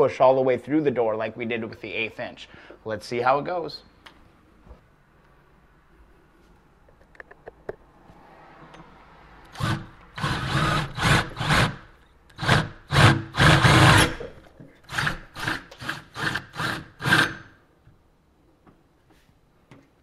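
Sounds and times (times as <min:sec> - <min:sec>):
drill grinding through metal: 0:09.5 - 0:14.3, 0:14.9 - 0:17.5.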